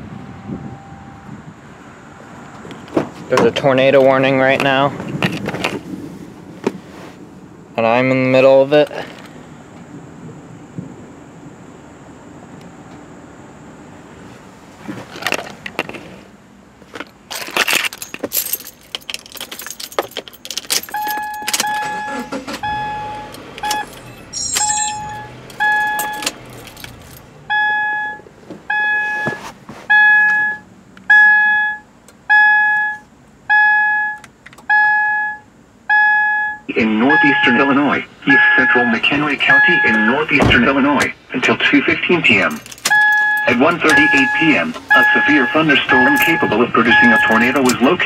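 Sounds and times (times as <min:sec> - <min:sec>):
car warning chime dinging: 0:00.1 - 0:01.3, 0:20.8 - 0:41.1, 0:42.1 - 0:48.0
handling noise: 0:02.4 - 0:07.2, 0:14.6 - 0:27.5, 0:28.2 - 0:30.6, 0:42.3 - 0:48.0
keys jangling: 0:17.0 - 0:22.5, 0:23.2 - 0:27.3, 0:42.4 - 0:47.8.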